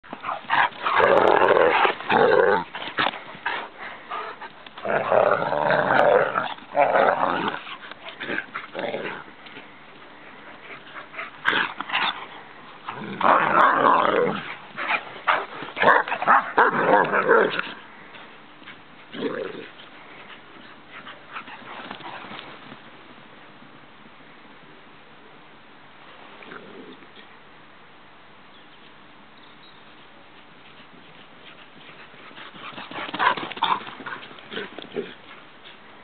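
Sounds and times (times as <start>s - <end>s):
dogs growling: 0.1s - 9.6s, 10.5s - 17.9s, 32.4s - 35.3s.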